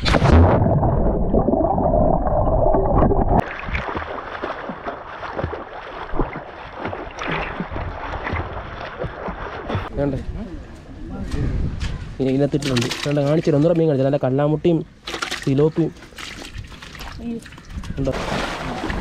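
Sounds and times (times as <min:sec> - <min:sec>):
muffled underwater rushing water: 0:00.0 - 0:09.9
water splashing and sloshing: 0:00.0 - 0:10.4, 0:11.4 - 0:14.0, 0:14.9 - 0:19.0.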